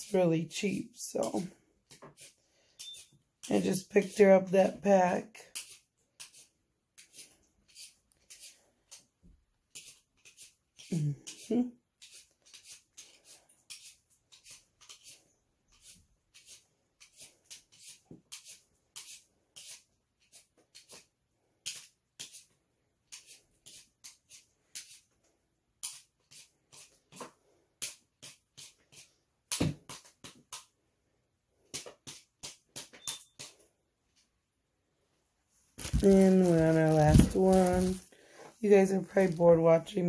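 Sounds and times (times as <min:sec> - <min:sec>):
peeler scraping potato skin: 0:01.2 - 0:09.1, 0:09.7 - 0:25.1, 0:25.8 - 0:29.2.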